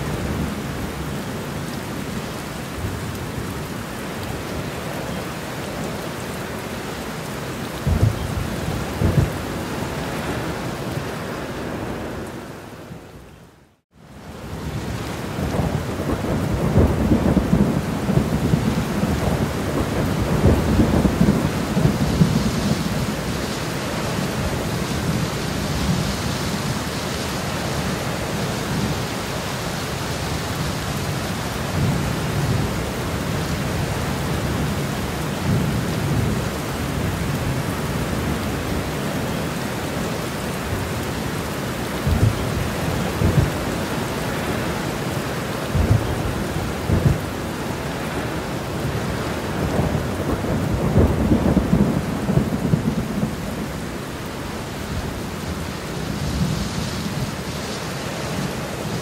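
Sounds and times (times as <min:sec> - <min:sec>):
steady rain: 0:00.0 - 0:59.0
rolling thunder: 0:07.8 - 0:09.5, 0:14.8 - 0:23.5, 0:41.4 - 0:43.8, 0:45.6 - 0:47.5, 0:48.8 - 0:54.3.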